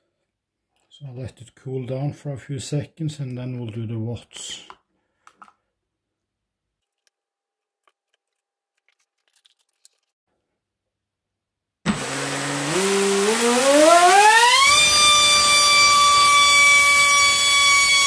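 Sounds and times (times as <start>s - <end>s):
electric motor and propeller whining: 11.9s - 18.0s.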